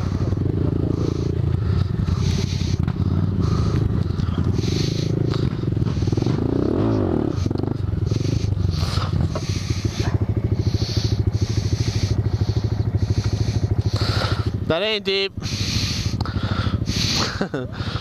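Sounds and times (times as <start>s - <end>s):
motorcycle engine revving and idling: 0.0s - 18.0s.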